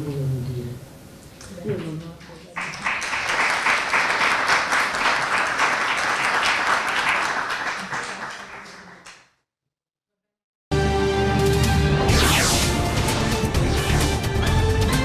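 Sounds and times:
audience applauding: 2.6 - 9.2.

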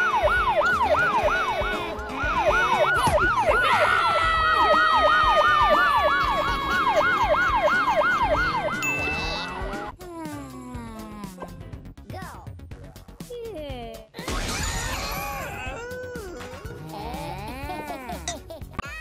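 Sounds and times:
police siren yelping: 0.0 - 9.9
background music: 0.0 - 19.0.

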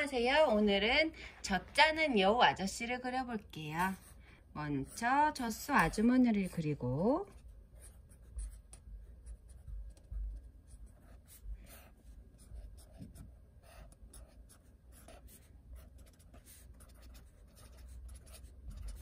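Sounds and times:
pen scratching on paper: 4.8 - 19.0.

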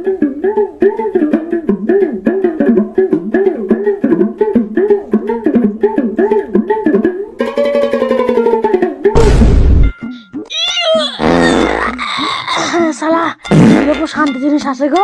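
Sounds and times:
plucked string melody: 4.1 - 10.5.

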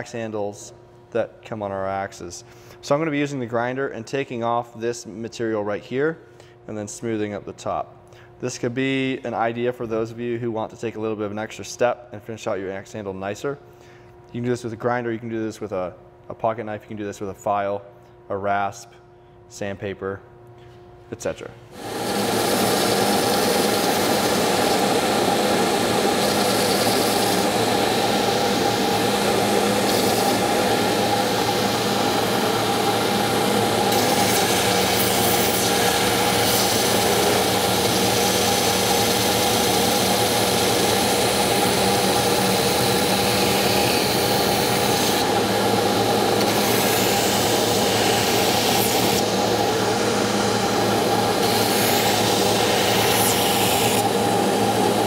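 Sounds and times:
belt grinder sanding wood: 21.8 - 55.0.

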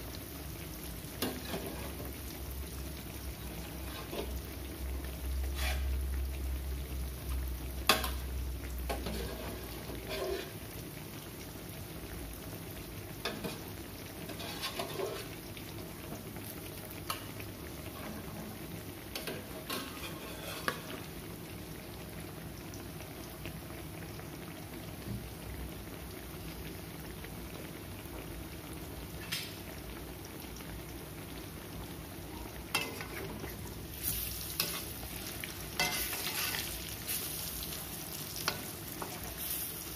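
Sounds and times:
food sizzling in oil: 0.0 - 39.9.

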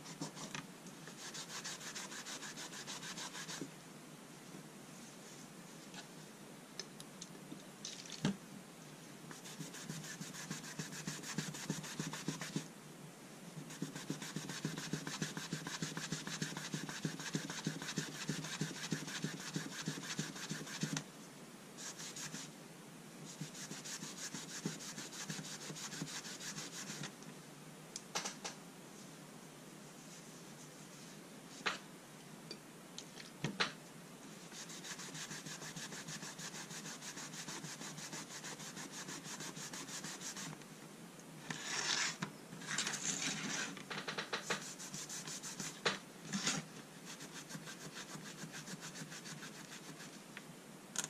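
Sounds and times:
damp cloth rubbing on folding rule: 1.2 - 3.6, 9.4 - 12.6, 13.7 - 21.0, 23.3 - 27.0, 34.4 - 40.6, 44.6 - 45.8, 46.4 - 50.2.

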